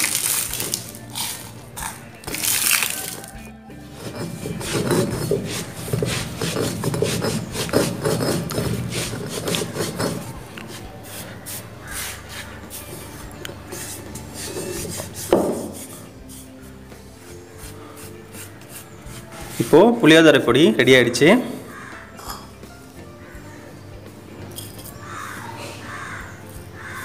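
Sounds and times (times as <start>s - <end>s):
stone roller grinding spices: 0.0s - 20.0s
hands scraping powder on stone: 2.8s - 16.8s, 17.6s - 19.9s.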